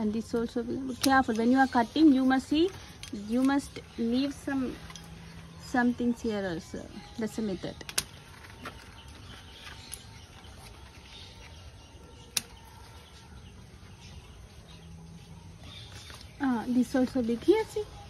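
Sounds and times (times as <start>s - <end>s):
low background noise: 0.0s - 18.0s
scissors snipping stalks: 12.3s - 12.6s.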